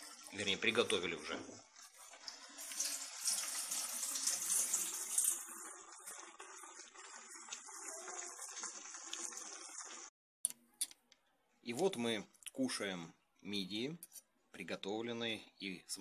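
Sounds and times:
food sizzling in a frying pan: 0:00.0 - 0:10.1.

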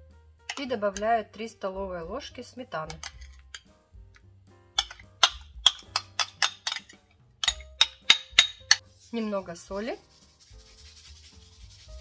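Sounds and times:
metal spoon clinking on bowls: 0:00.5 - 0:01.1, 0:02.9 - 0:03.7, 0:04.8 - 0:08.8.

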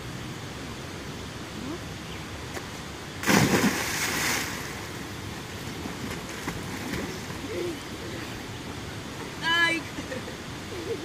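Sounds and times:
child splashing into water: 0:03.2 - 0:04.9.

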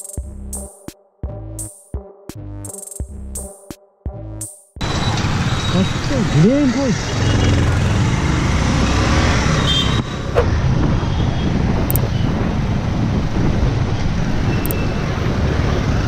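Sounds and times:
wind and road noise: 0:04.8 - 0:16.0.

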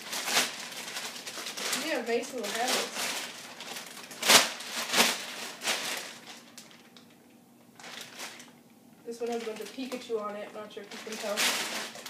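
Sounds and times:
plastic bag rustling: 0:00.0 - 0:12.0.

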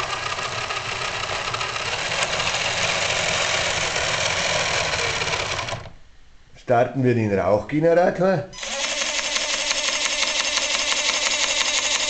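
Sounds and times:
electric gear motor running: 0:00.0 - 0:06.0, 0:08.6 - 0:12.0.

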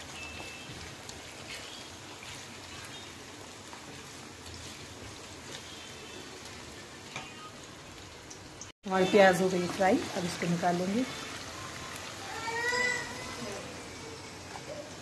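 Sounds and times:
vegetables sizzling in oil: 0:00.0 - 0:15.0
wooden spatula stirring: 0:00.4 - 0:06.5.

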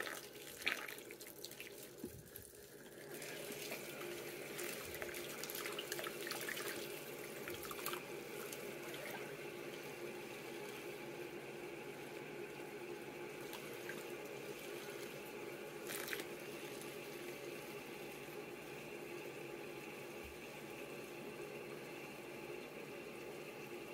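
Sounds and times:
soapy water sloshing: 0:00.0 - 0:11.2, 0:13.3 - 0:18.3.

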